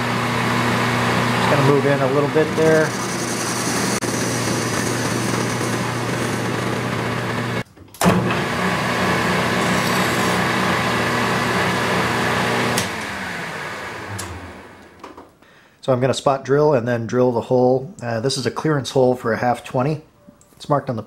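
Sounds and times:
lathe motor hum: 0:00.0 - 0:07.6, 0:08.3 - 0:15.0
hand file on spinning metal: 0:09.6 - 0:10.4.

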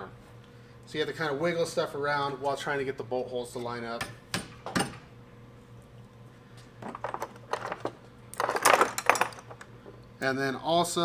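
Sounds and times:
metal tools clinking: 0:06.9 - 0:09.7.

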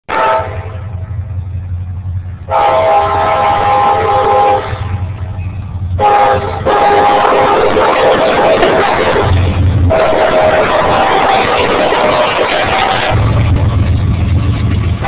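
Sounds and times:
low rumble of train: 0:00.0 - 0:15.0
locomotive air horn blasts: 0:00.1 - 0:01.1, 0:02.5 - 0:05.1, 0:05.9 - 0:13.6.

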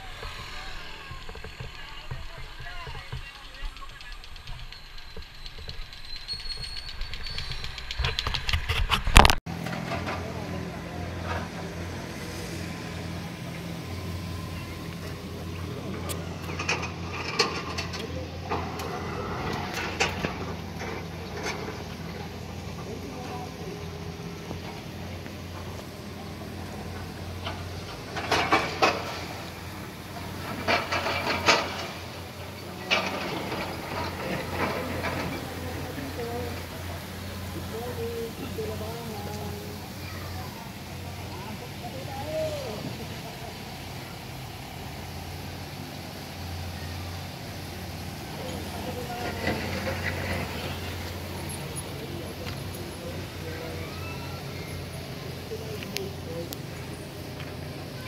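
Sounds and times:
construction machinery engine hum: 0:00.0 - 0:58.0
clanking and knocking: 0:15.9 - 0:24.7, 0:25.4 - 0:37.7.

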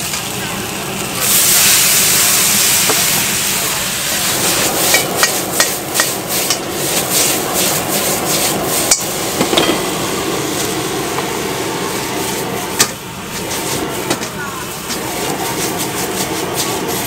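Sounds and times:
food sizzling: 0:00.0 - 0:17.0
gas burner hiss: 0:00.0 - 0:17.0
metal ladle clanking on wok: 0:08.9 - 0:10.0.

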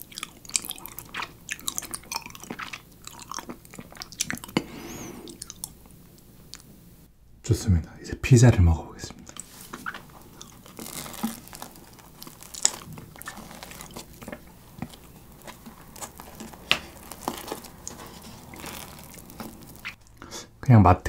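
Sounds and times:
pizza crust crackling and ripping: 0:09.4 - 0:20.2
sharp crunches: 0:09.7 - 0:20.0.

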